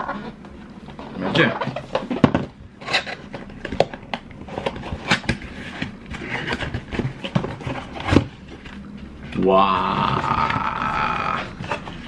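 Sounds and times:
cardboard scraping and rubbing: 4.4s - 8.7s.

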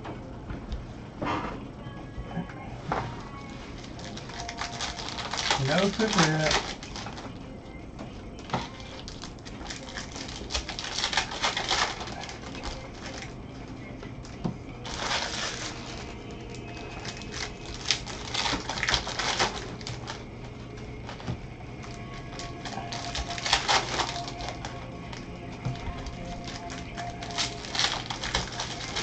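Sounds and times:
foil wrappers tearing and crinkling: 3.2s - 7.4s, 8.4s - 13.3s, 14.8s - 29.0s.

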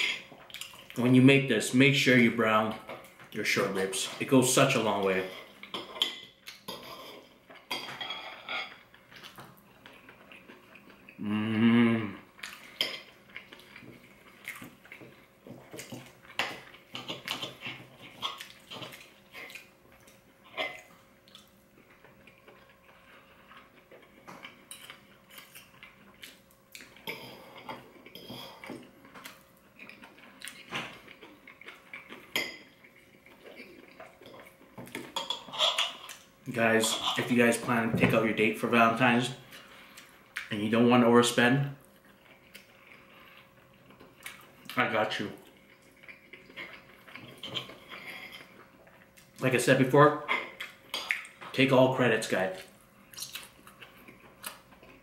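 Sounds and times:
person humming mmm: 11.2s - 12.3s
knife and fork scraping on plate: 47.4s - 48.5s.

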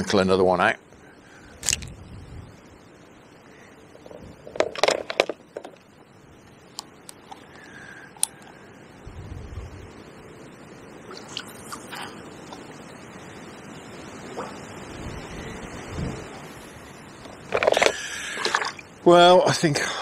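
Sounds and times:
wind rumble on microphone: 1.4s - 2.8s, 4.0s - 4.6s, 9.0s - 10.0s, 14.4s - 17.5s.

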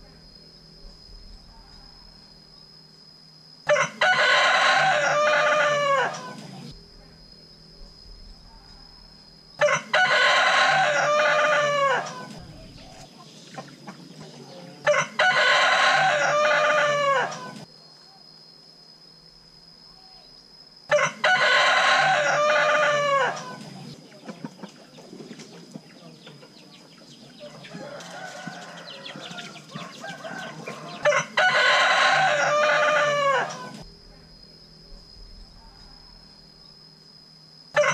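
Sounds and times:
distant rooster crowing: 3.6s - 6.6s, 9.6s - 12.8s, 14.6s - 17.7s, 20.9s - 24.0s, 27.4s - 33.9s
rooster crowing: 3.6s - 6.6s, 9.6s - 12.5s, 14.6s - 17.7s, 20.9s - 23.9s, 27.4s - 33.8s.

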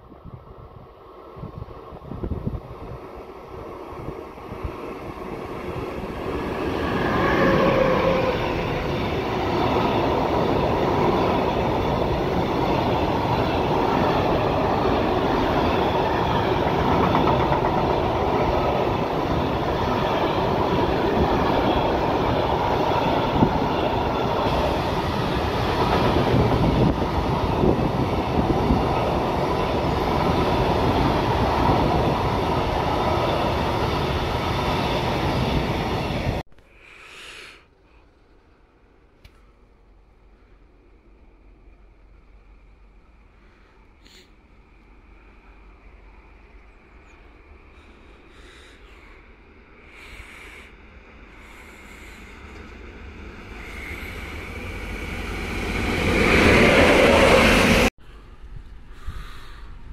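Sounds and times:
train wheels on rails: 1.4s - 36.4s, 47.4s - 59.9s.

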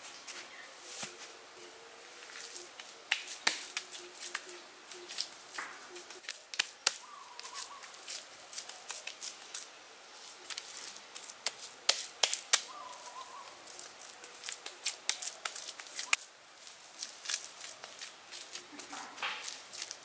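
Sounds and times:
hands patting wet clay: 2.3s - 9.7s, 10.4s - 20.0s.

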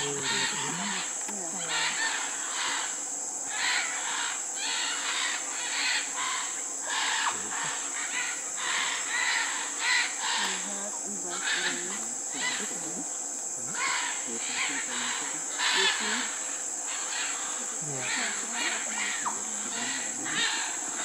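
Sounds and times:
macaws squawking: 0.0s - 13.1s, 13.7s - 21.0s
high-pitched insect drone: 0.0s - 21.0s.

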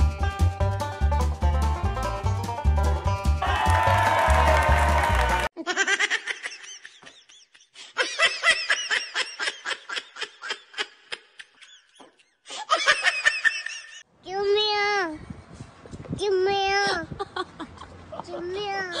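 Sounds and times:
high-pitched laughter: 5.6s - 14.0s, 16.9s - 19.0s.

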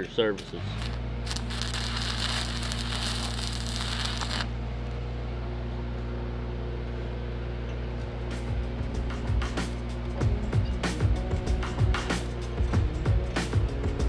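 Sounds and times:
low engine hum: 0.0s - 14.0s
welding arc crackling and hissing: 0.4s - 4.6s.

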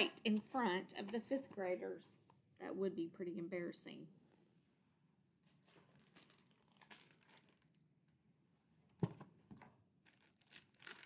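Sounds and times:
plastic bag crinkling: 5.5s - 7.8s, 10.1s - 11.0s.

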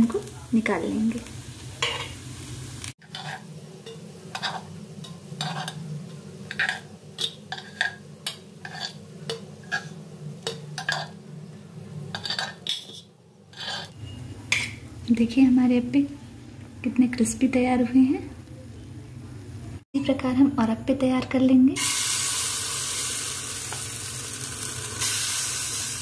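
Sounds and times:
metal spoon scraping and clinking: 3.0s - 5.8s, 6.5s - 11.2s, 12.1s - 14.8s.

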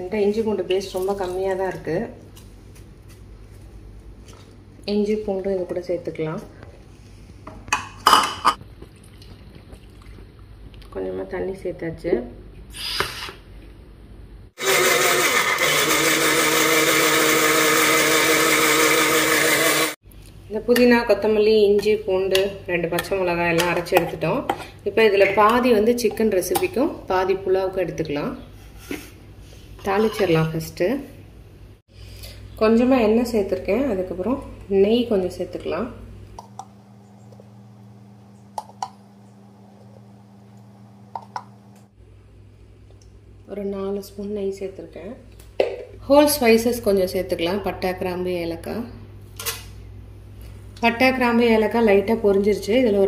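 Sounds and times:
mixer grinder motor whine: 14.6s - 20.0s
steady low hum: 20.0s - 46.0s.

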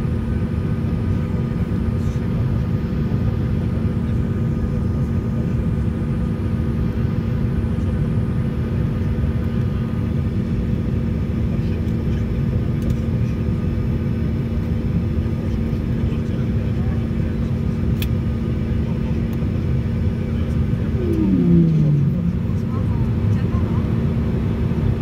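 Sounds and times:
jet engines: 0.0s - 25.0s
low hum: 19.6s - 25.0s
rush of air in cabin: 20.5s - 23.8s.

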